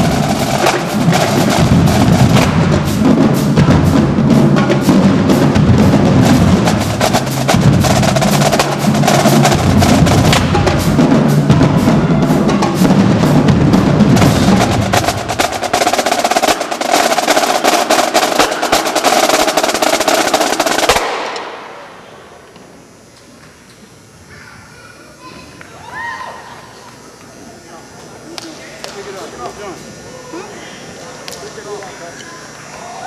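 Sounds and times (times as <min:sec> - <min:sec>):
deep bass drums: 0:00.0 - 0:16.4
snare drums: 0:00.0 - 0:21.9
tenor drums: 0:00.0 - 0:22.1.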